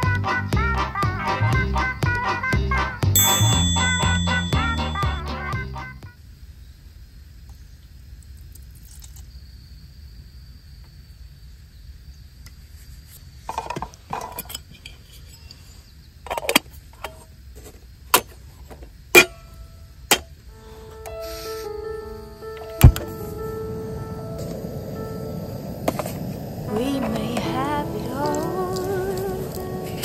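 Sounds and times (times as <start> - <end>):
low outdoor rumble: 21.8 - 30.0.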